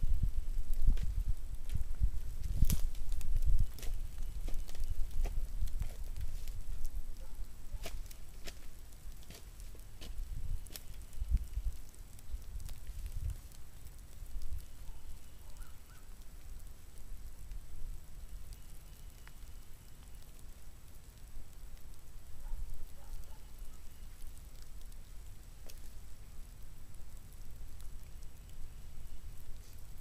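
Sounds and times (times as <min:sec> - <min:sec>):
low rumble on microphone: 0:00.0 - 0:08.4
faint chirps: 0:14.6 - 0:16.1, 0:18.2 - 0:20.4, 0:23.4 - 0:24.3
faint ticks: 0:18.2 - 0:30.0.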